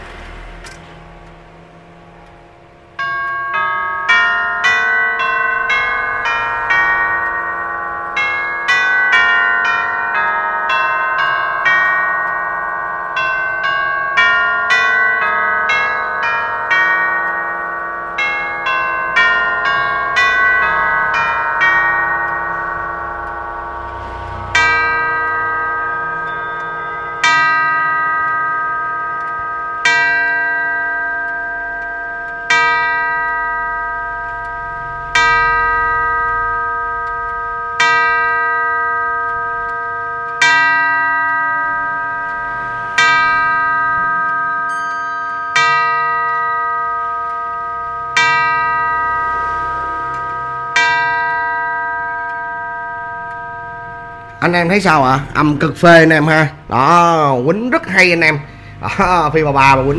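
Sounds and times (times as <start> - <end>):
clock chime tune: 0.0 - 59.9
clock tolling the hour: 0.0 - 59.9.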